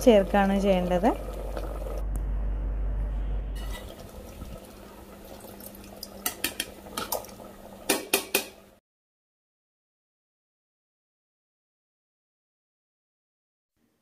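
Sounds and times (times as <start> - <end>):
steel ladle scraping a pot: 3.6 - 4.0.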